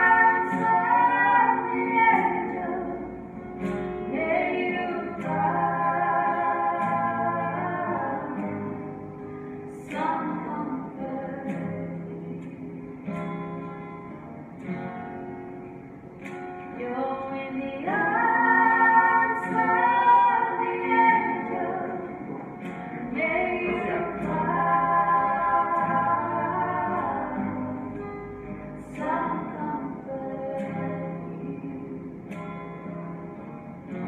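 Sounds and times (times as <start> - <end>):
people singing: 0.0 - 9.0, 9.7 - 12.8, 16.8 - 28.0, 28.8 - 32.2
guitar accompaniment: 0.0 - 34.0.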